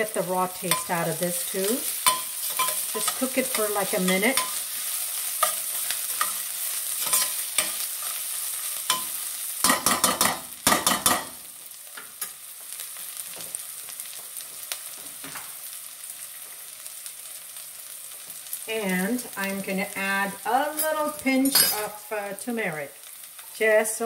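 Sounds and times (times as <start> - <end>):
onions sizzling in oil: 0.0 - 24.0
spoon scraping metal pan: 0.6 - 8.2.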